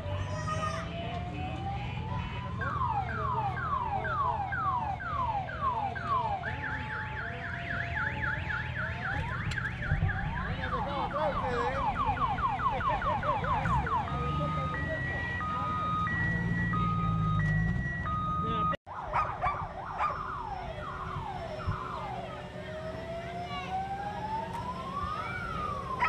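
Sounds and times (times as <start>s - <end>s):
electronic siren wailing: 0.0s - 26.0s
vehicle engine running: 20.2s - 26.0s.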